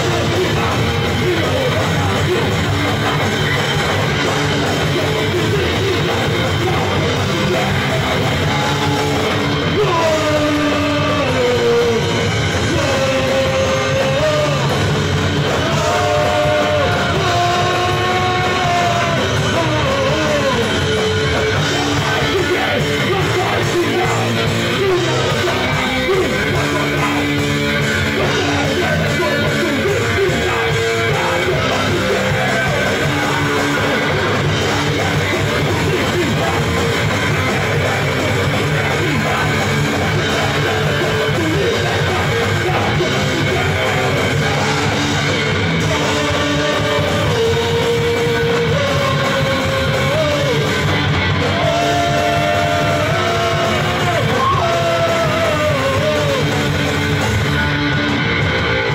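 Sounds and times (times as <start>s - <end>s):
live rock band playing: 0.0s - 58.9s
sliding vocal or lead line: 0.0s - 58.9s.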